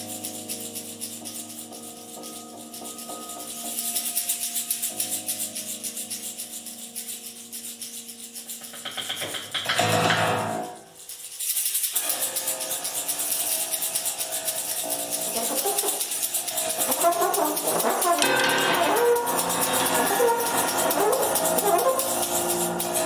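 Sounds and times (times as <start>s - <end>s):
trombone improvising: 15.4s - 23.0s.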